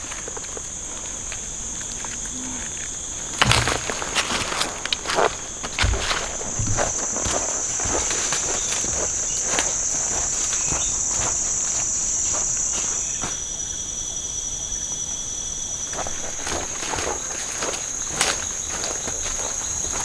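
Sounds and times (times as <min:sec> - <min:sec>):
footsteps on forest floor: 0:00.0 - 0:13.5, 0:15.9 - 0:20.0
insect chorus buzzing: 0:00.0 - 0:20.0
lower insect tone: 0:00.0 - 0:20.0.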